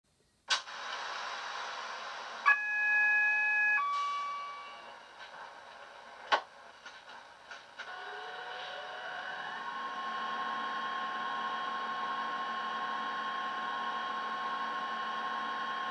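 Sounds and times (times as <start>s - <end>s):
hiss: 0.5s - 2.5s
two-tone train horn: 2.5s - 5.0s.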